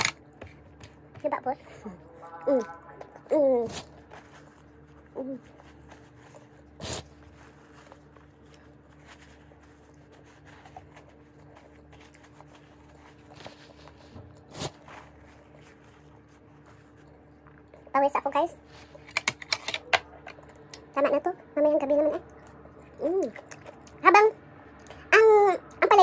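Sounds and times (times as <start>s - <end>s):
faint steady hum: 0.0s - 26.0s
paper napkin rustling: 3.4s - 17.6s.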